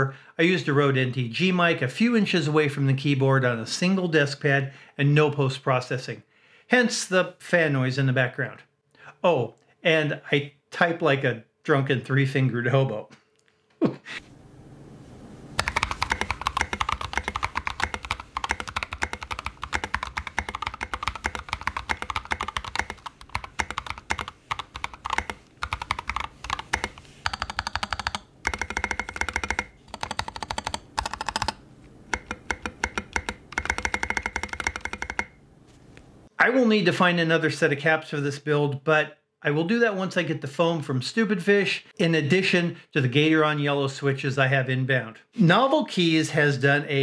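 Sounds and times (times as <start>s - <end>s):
faint fan noise: 14.2s - 36.5s
mechanical keyboard typing: 15.6s - 35.4s.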